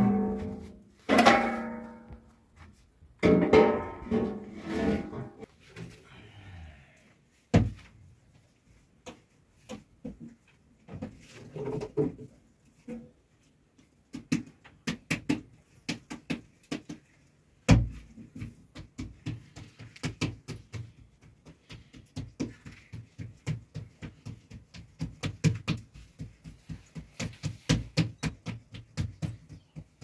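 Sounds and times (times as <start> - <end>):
hands slapping bread dough: 13.8 - 30.0.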